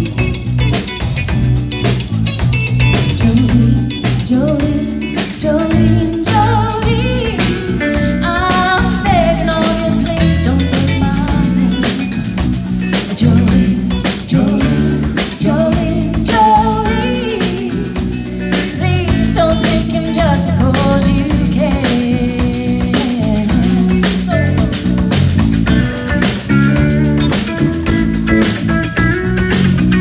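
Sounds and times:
drum kit: 0:00.0 - 0:30.0
electric bass: 0:00.0 - 0:30.0
electric guitar: 0:00.0 - 0:30.0
woman singing into microphone: 0:03.1 - 0:12.3, 0:13.0 - 0:25.2.

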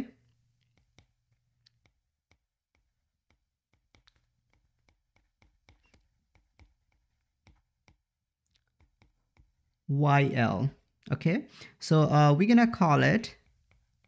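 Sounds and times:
stylus tapping on tablet screen: 0:00.6 - 0:09.8.

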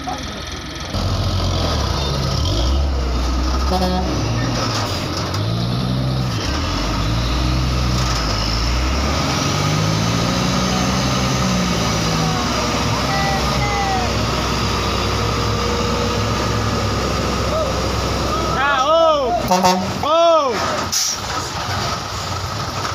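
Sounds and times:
diesel truck engine pulling: 0:00.0 - 0:22.9.

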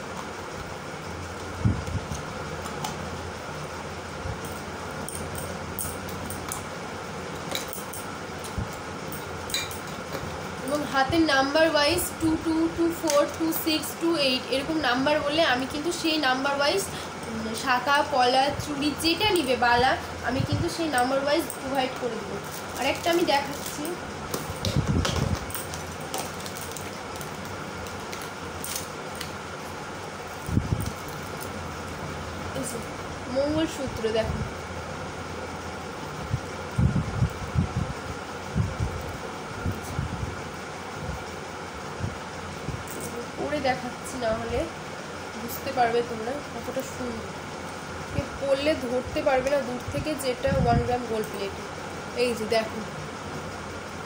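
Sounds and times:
room fan humming: 0:00.0 - 0:54.0
jewellery clinking: 0:09.1 - 0:10.1.

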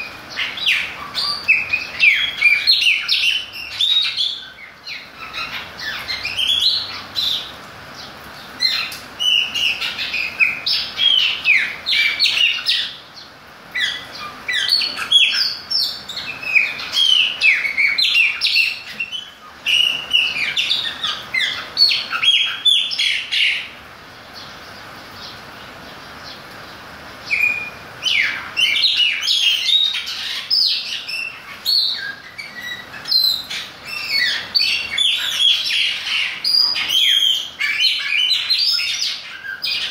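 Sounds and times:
birds singing whistled notes: 0:00.0 - 0:39.9.

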